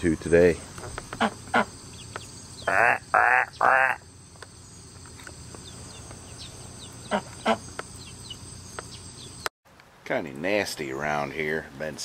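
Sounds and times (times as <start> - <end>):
insect trill: 0.0 - 9.5
duck quacking: 2.6 - 4.0.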